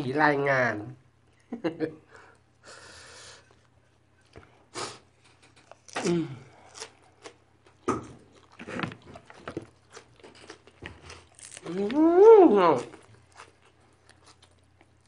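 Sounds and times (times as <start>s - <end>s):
food being chewed: 3.4s - 15.0s.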